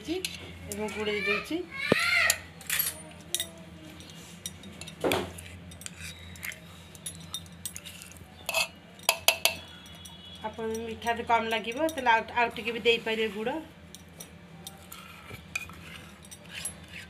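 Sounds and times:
spoon scraping steel bowl: 0:04.1 - 0:17.0.

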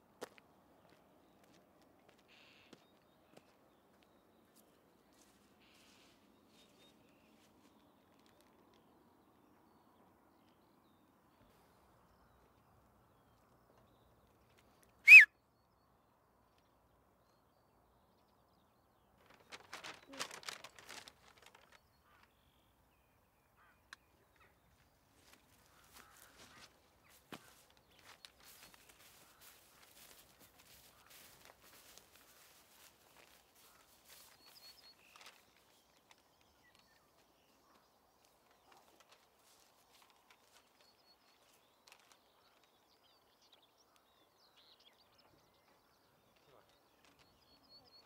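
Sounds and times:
footsteps in grass: 0:00.2 - 0:08.4, 0:24.8 - 0:42.3
short high chirp: 0:15.1 - 0:15.3.

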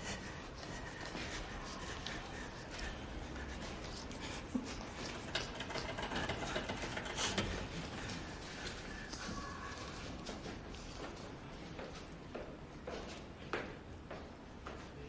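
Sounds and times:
background ambience: 0:00.0 - 0:14.7
faint clicks and knocks: 0:04.8 - 0:08.8.

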